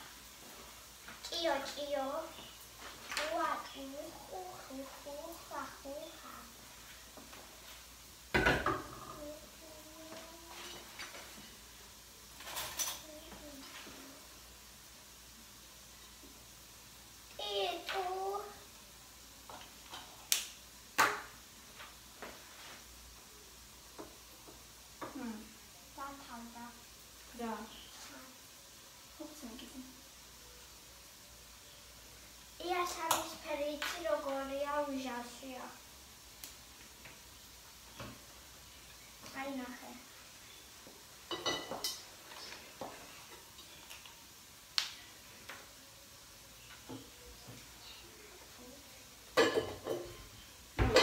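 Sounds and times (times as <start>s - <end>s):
utensils and dishes clinking on counter: 41.3s - 44.0s, 49.4s - 51.0s.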